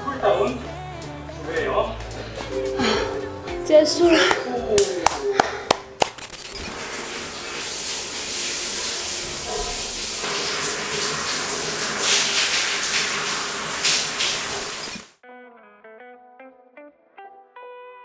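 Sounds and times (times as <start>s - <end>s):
shower water spraying on tiles: 6.2s - 15.2s.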